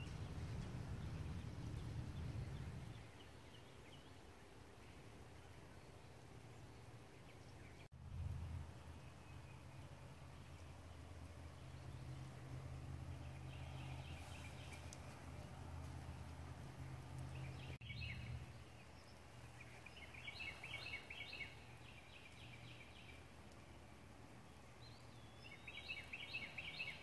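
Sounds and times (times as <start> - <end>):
low steady hum: 0.0 - 27.0
small birds chirping: 8.6 - 27.0.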